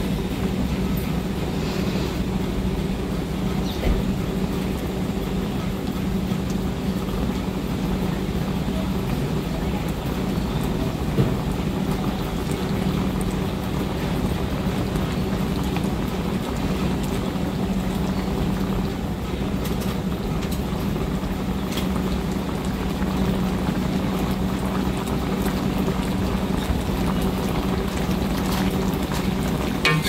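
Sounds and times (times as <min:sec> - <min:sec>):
gravy simmering in a wok: 0:00.0 - 0:30.0
steady low hum: 0:00.0 - 0:30.0.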